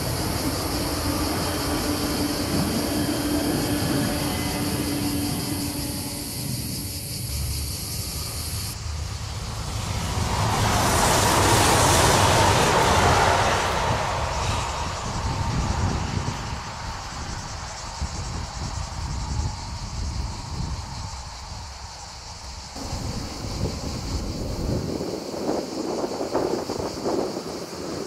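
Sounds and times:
high-pitched buzz: 0.0s - 9.0s
train wheels rushing on rail: 0.0s - 28.0s.

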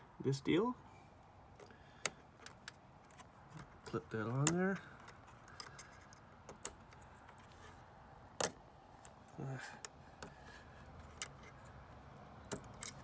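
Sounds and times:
sharp plastic clicks: 1.6s - 7.1s.

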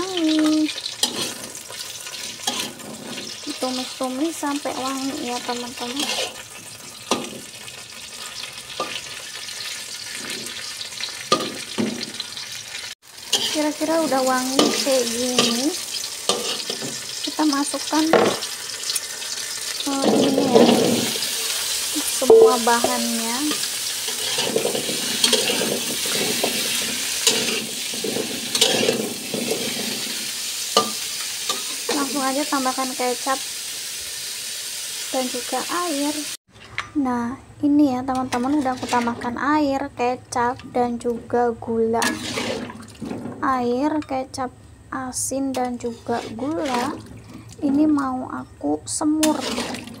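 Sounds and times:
vegetables sizzling in a wok: 0.0s - 50.0s
metal ladle scraping pan: 0.3s - 12.4s, 13.3s - 17.2s, 19.8s - 32.2s, 38.1s - 39.4s, 40.6s - 44.2s, 45.5s - 48.0s, 49.0s - 50.0s
vegetables clattering: 22.3s - 30.2s, 42.0s - 44.1s.

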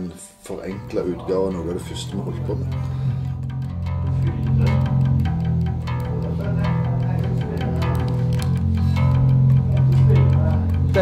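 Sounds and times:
electric bass low notes: 0.7s - 11.0s
electric guitar: 2.9s - 11.0s.

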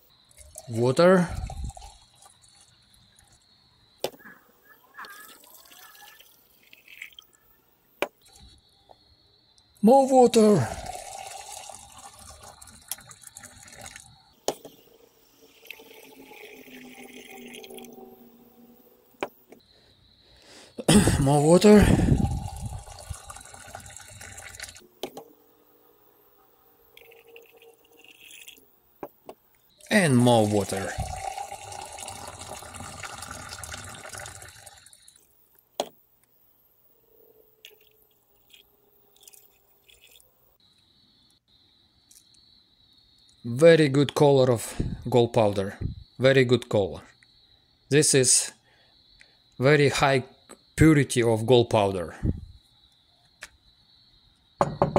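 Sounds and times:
water pouring into glass beaker: 0.3s - 3.3s, 5.2s - 7.4s, 10.4s - 14.2s, 15.4s - 18.3s, 21.2s - 24.8s, 27.0s - 28.6s, 29.8s - 35.3s
water decanted into plastic bucket: 10.6s - 14.1s, 15.4s - 18.5s, 21.6s - 24.8s, 30.0s - 35.2s
sharp knock: 54.6s - 54.9s.

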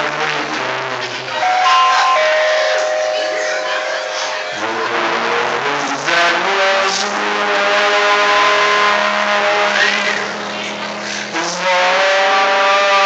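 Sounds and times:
piano accompaniment: 1.4s - 5.8s
man singing sustained notes: 1.4s - 13.0s.

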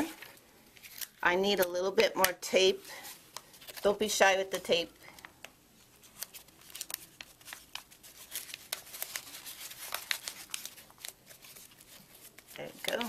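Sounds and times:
paper and plastic bag crinkling: 2.9s - 3.9s, 6.0s - 13.0s.

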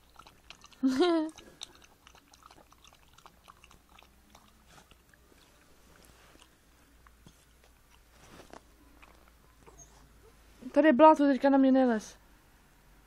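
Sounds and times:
puppy sniffing and mouth noises: 0.0s - 10.3s.

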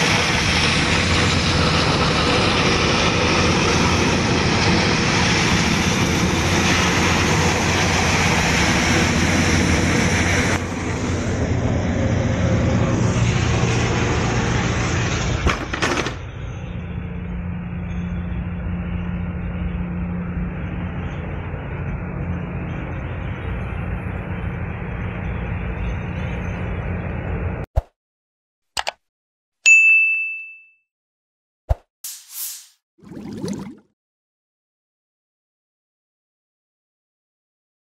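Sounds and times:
boat engines and pumps running: 0.0s - 27.6s
water cannons spraying: 32.0s - 32.8s.

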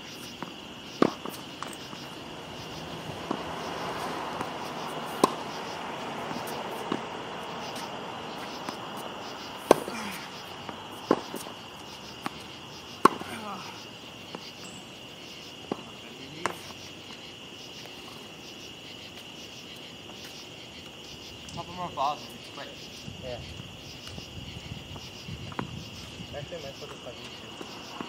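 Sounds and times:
night insects chirring: 0.0s - 28.0s
tennis ball struck by racquet: 0.4s - 13.4s.

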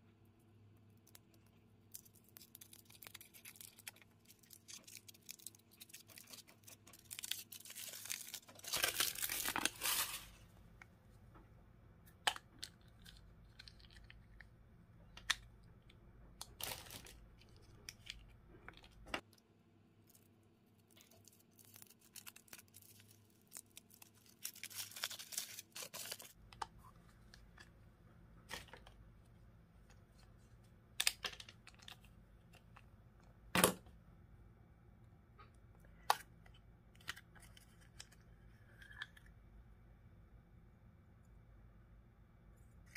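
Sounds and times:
foil wrapper crinkling and tearing: 1.9s - 10.4s, 16.5s - 18.9s, 20.1s - 26.4s.

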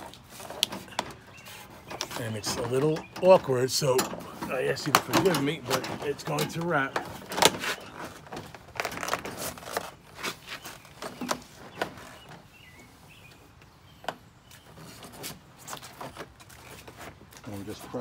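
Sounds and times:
plastic siding clicking and knocking: 0.0s - 10.0s, 10.8s - 12.5s.

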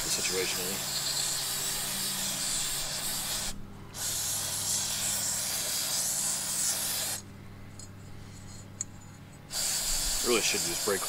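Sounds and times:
aerosol spray hissing: 0.0s - 7.2s, 9.5s - 11.0s.

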